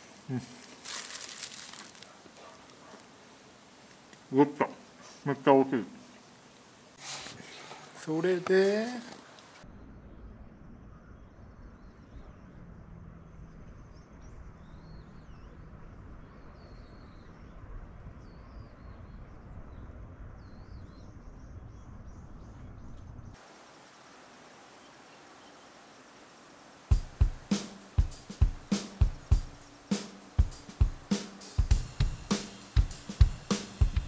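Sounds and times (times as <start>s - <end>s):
hissy background: 0.0s - 34.0s
wind rumble on microphone: 9.7s - 23.3s.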